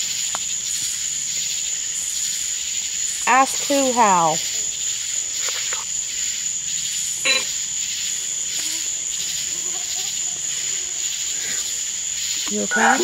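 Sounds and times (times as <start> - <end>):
static hiss from speaker: 0.0 - 13.0
chopped voice fragments: 12.5 - 13.0.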